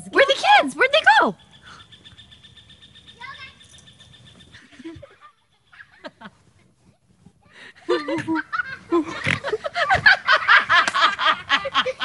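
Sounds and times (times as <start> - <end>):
high-pitched laughter: 4.6 - 6.4, 7.5 - 12.0.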